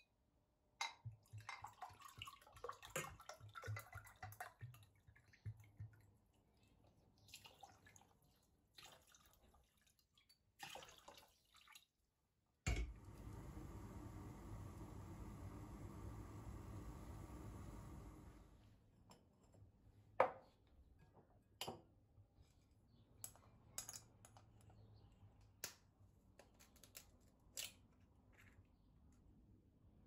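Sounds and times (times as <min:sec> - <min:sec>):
water pouring into a saucepan: 0:01.2 - 0:06.0, 0:07.2 - 0:11.9
steady hiss: 0:13.0 - 0:18.6.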